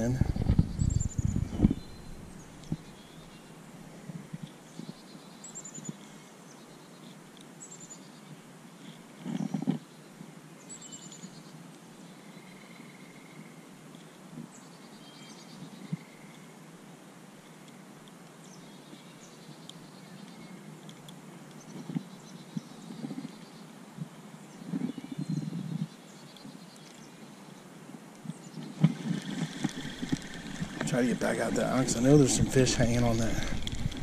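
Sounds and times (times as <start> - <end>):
birds chirping and trilling: 0.0 - 3.6, 28.3 - 34.0.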